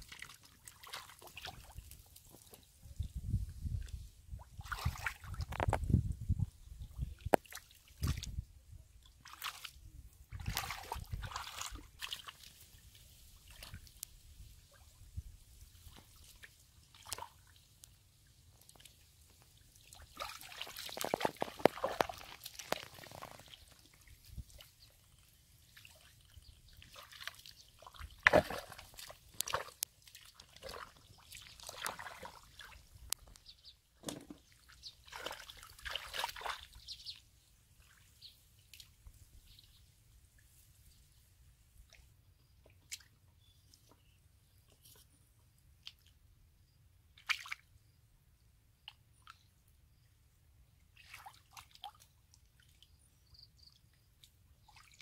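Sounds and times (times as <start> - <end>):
sloshing through muddy water: 0.0 - 2.9, 3.6 - 5.9, 6.8 - 17.8, 18.5 - 33.1, 34.1 - 37.0, 47.2 - 47.7, 50.9 - 53.0, 54.2 - 55.0
sharp slaps on water: 28.2 - 29.8.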